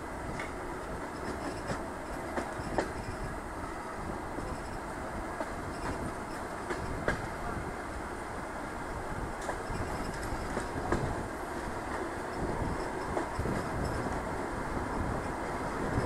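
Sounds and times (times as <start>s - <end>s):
train wheels rumbling: 0.0s - 16.0s
wheels clicking on track: 0.3s - 3.3s, 9.4s - 16.0s.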